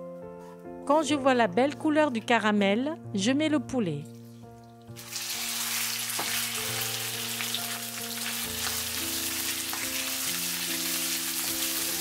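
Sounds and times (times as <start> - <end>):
chicken sizzling in a wok: 5.0 - 12.0.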